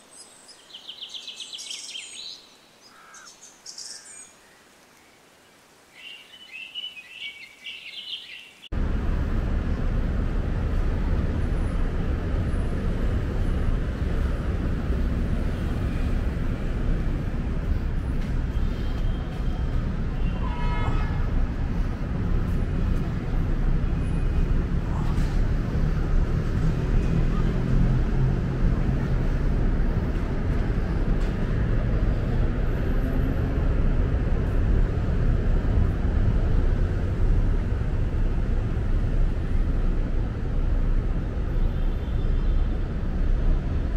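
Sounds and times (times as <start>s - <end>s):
birdsong: 0.0s - 8.7s
city traffic noise: 7.6s - 43.9s.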